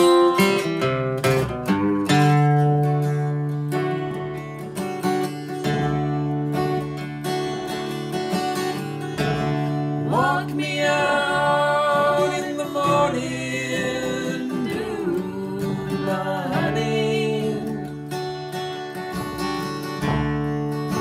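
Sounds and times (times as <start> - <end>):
acoustic guitar chords: 0.0 - 21.0
man and woman singing: 9.9 - 18.2.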